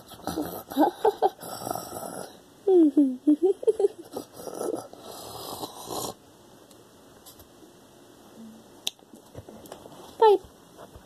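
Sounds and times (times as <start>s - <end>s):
girl laughing: 2.7s - 4.2s.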